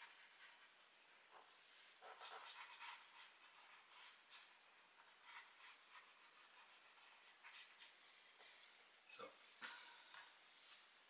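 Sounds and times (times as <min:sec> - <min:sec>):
pencil scratching on wood: 0:00.0 - 0:08.0.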